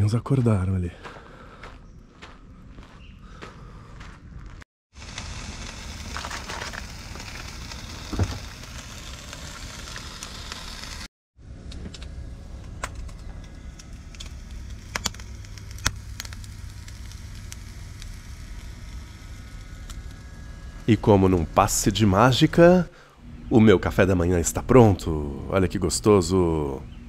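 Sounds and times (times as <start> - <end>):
bacon sizzling in a frying pan: 5.0 - 11.1.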